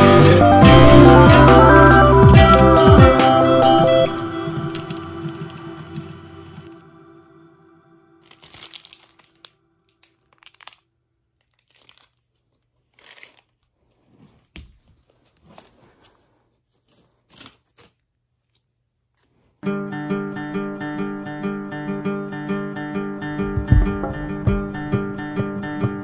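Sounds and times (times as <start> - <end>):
plastic bag crinkling: 8.2 - 13.8
soft thump: 23.4 - 26.0.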